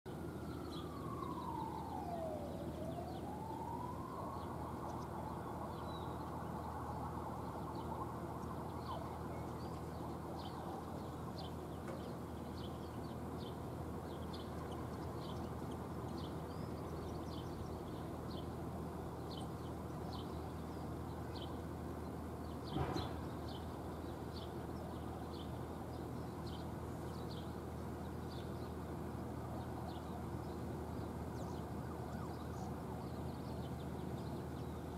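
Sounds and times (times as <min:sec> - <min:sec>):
distant traffic hum: 0:00.1 - 0:34.9
wailing tone sliding in pitch: 0:01.0 - 0:09.6.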